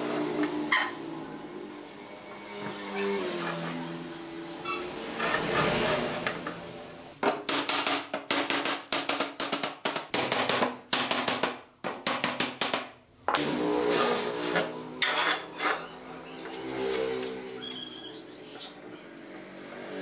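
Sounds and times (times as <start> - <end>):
sharp wooden knocks: 7.2 - 12.9.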